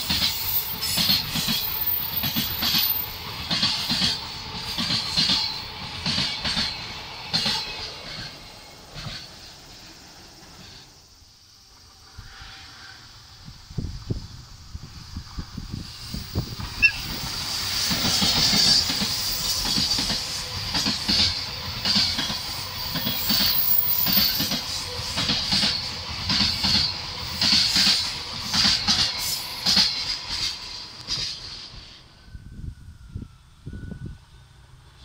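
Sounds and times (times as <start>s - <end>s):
wheels clacking over rail joints: 0.0s - 11.0s, 16.3s - 31.6s
freight train rolling hiss: 0.0s - 35.0s.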